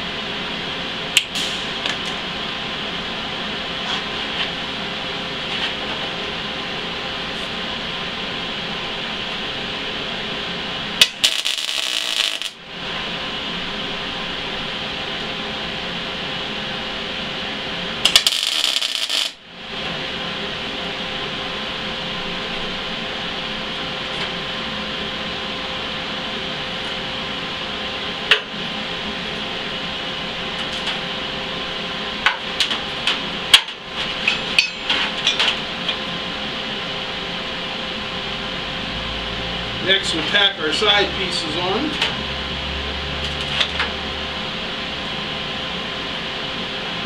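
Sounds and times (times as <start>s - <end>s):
steady shop hum: 0.0s - 47.0s
welding crackle: 11.0s - 12.6s, 18.0s - 19.4s.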